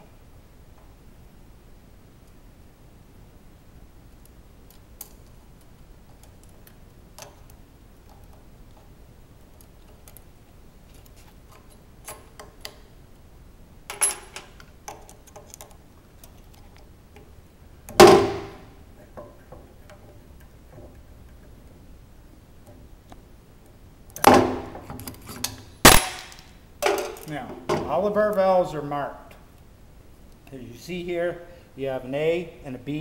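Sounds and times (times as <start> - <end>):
loud metal clunk: 18.0 - 18.7.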